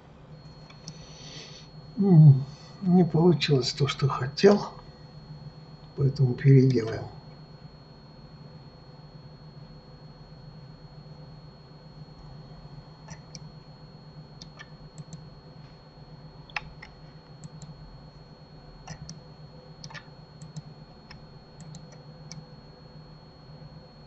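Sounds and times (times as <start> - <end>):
faint high whine: 0.0 - 24.0
steady low hum: 0.0 - 24.0
mouse and keyboard clicking: 19.8 - 20.6.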